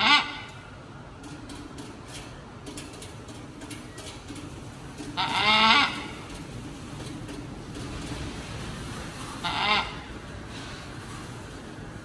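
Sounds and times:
parrot call: 5.2 - 6.2, 9.4 - 10.1.

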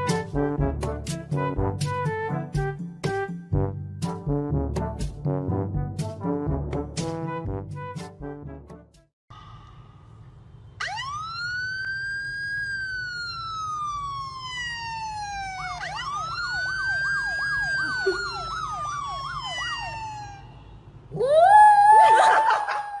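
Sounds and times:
siren wailing from phone: 10.8 - 20.7.

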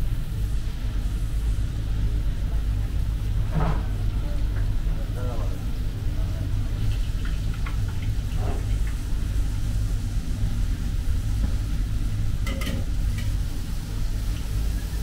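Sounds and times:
dough sizzling in hot oil: 5.6 - 15.0.

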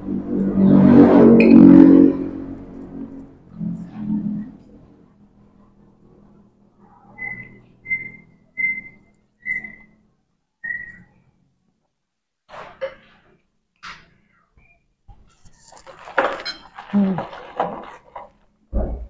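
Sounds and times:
short whistled notes: 7.2 - 10.0, 10.6 - 11.2.

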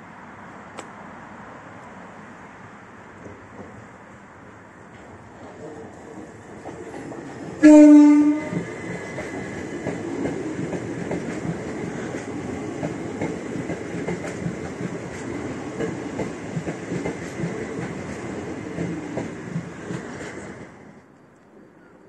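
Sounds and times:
train wheels clattering over rail joints: 4.9 - 20.7.

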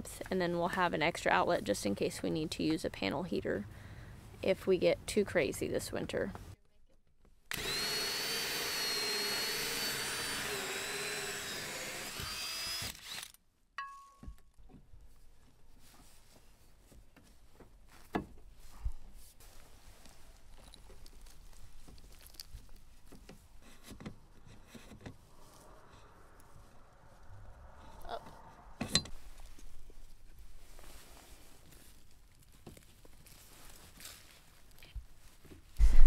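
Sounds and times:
cordless drill motor whine: 7.5 - 13.4
faint handling clicks and knocks: 20.5 - 25.2.

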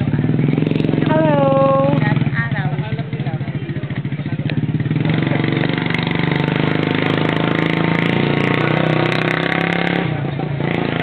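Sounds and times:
motorcycle engine idling: 0.0 - 7.9.

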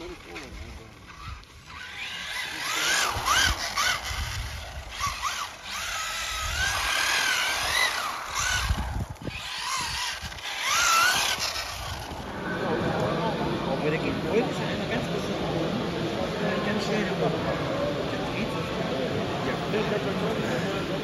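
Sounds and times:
model car electric motor whining: 0.0 - 12.3.

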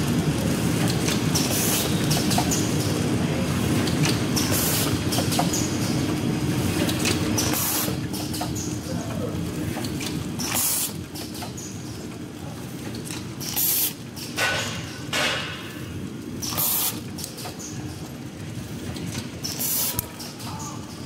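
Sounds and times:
packaging machine hum: 0.0 - 21.0
compressed air hisses: 16.5 - 17.0.

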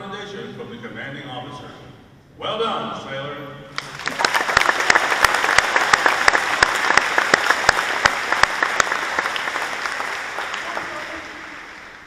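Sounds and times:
audience applauding: 3.8 - 12.0
close hand clapping: 3.8 - 12.0.

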